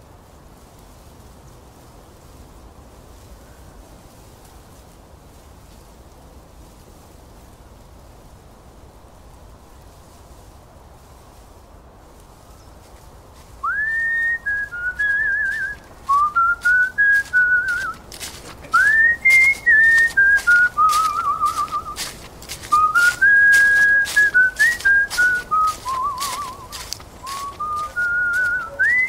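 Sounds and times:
person whistling a tune: 13.6 - 18.0, 18.8 - 22.1, 22.7 - 29.0.

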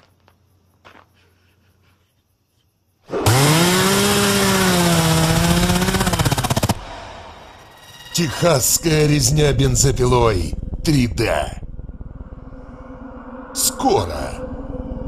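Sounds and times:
chainsaw revving: 3.1 - 7.1.

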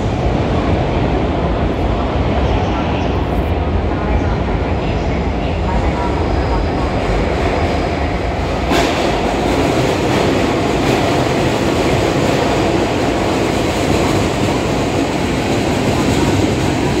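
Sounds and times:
train wheels rumbling past: 5.7 - 17.0.

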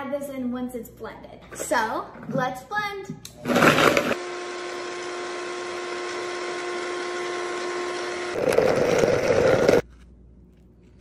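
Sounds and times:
blender motor whine: 3.4 - 9.8.

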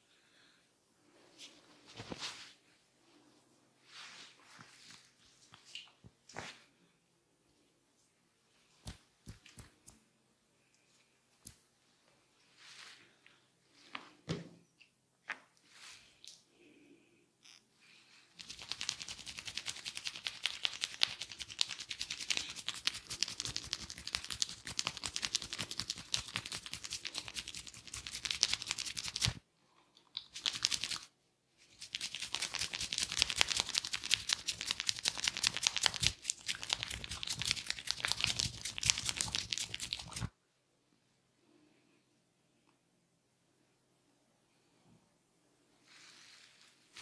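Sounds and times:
hands rubbing hair and scalp: 3.8 - 6.7, 8.5 - 10.0, 18.4 - 29.4, 30.2 - 40.3, 45.8 - 47.0.

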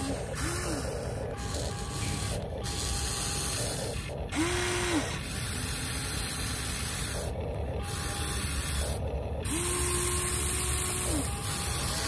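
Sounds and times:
electric gear motors whirring: 0.0 - 12.0
motor whine rising and falling: 0.0 - 12.0.

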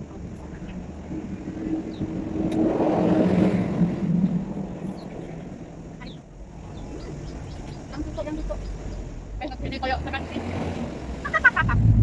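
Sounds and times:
vehicle engine passing by: 0.5 - 5.9, 6.6 - 12.0.

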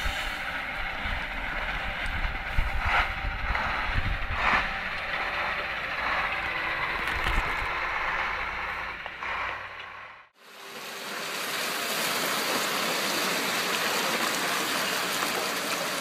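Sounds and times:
truck diesel engine running: 0.0 - 10.4.

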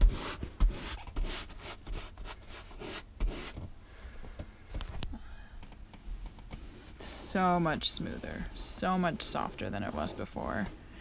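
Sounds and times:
brush scrubbing fabric: 0.0 - 3.6, 6.7 - 11.0.

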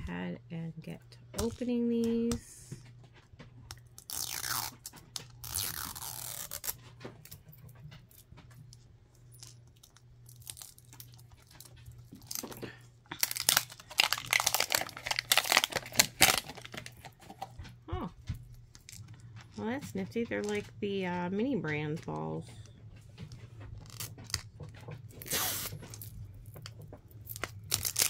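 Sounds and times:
plastic wrapper crinkling and tearing: 3.7 - 6.8, 9.4 - 17.6, 23.8 - 24.5, 25.2 - 28.0.

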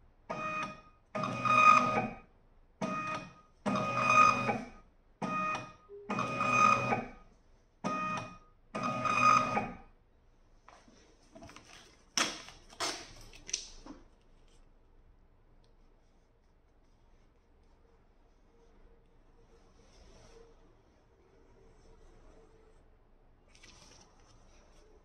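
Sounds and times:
printer motor whirring: 0.3 - 2.2, 2.8 - 7.1, 7.8 - 9.8
paper rustling: 10.7 - 14.7, 23.5 - 25.0
paper crackles: 10.8 - 14.7, 23.5 - 24.8.

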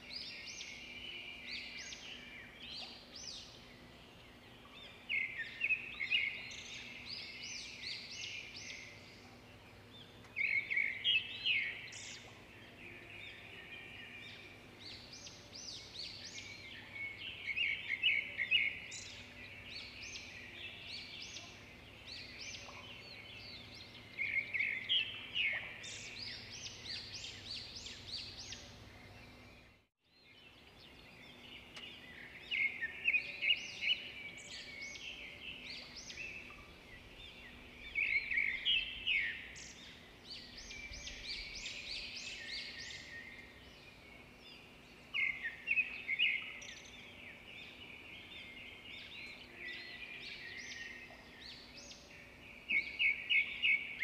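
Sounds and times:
quiet bird chirping: 0.0 - 54.0.

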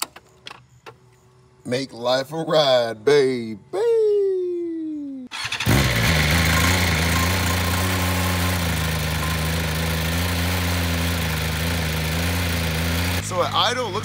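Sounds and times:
motorcycle engine starting and idling: 5.3 - 14.0
falling tone: 5.8 - 10.6.

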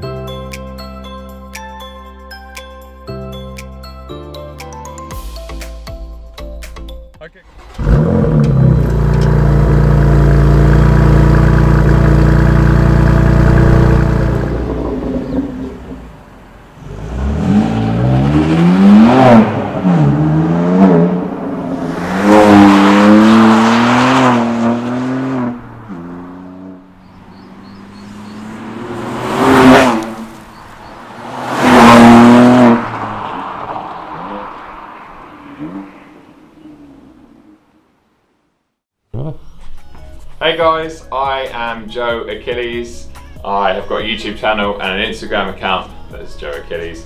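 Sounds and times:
car engine revving: 7.4 - 37.8
car accelerating through gears: 7.6 - 37.6
car passing by: 14.5 - 37.2.

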